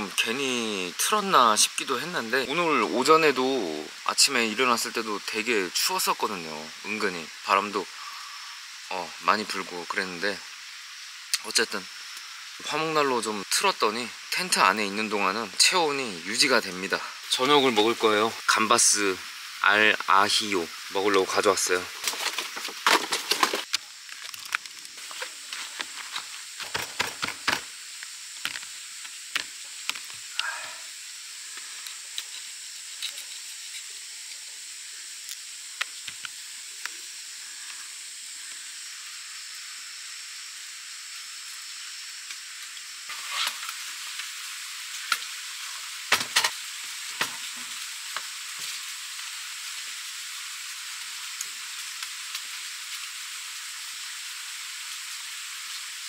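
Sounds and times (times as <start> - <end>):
steady high hiss: 0.0 - 56.0
plastic tray crinkling: 21.9 - 27.6.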